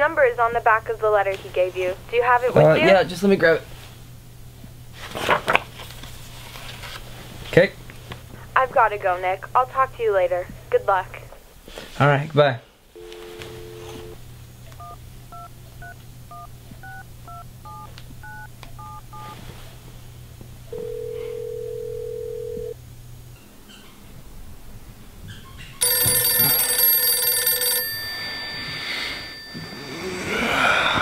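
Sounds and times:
telephone ringing: 13.0 - 14.2, 20.7 - 22.8, 25.8 - 31.0
ringback tone: 25.8 - 31.0.

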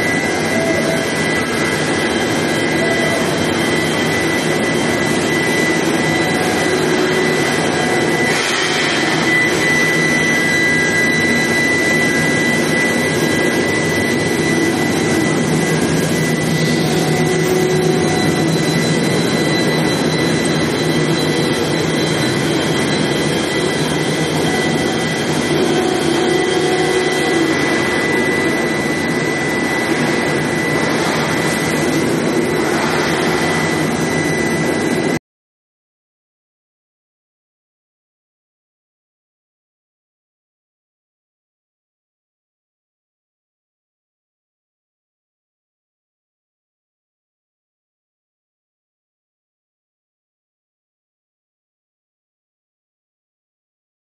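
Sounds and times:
high-pitched whine: 0.0 - 35.2
loud steady machine noise: 0.0 - 35.2.

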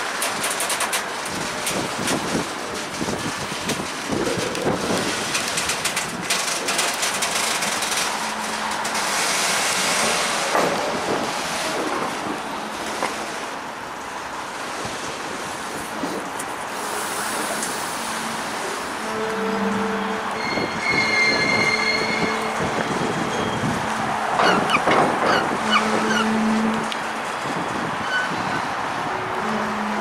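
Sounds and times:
wheels clicking over track: 0.0 - 13.6, 24.0 - 28.6
freight train rolling past: 0.0 - 30.0
wind on microphone: 1.3 - 6.3, 20.4 - 29.5.

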